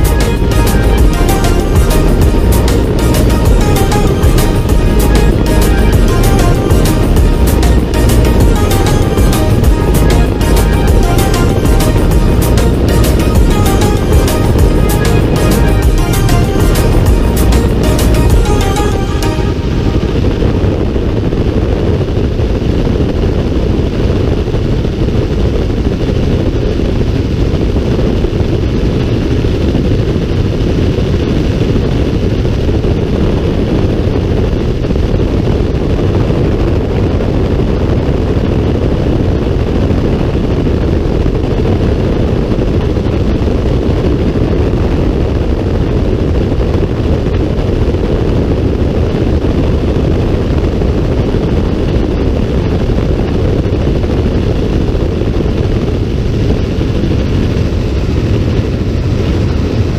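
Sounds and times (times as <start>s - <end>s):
helicopter engine and rotor noise: 0.0s - 38.6s.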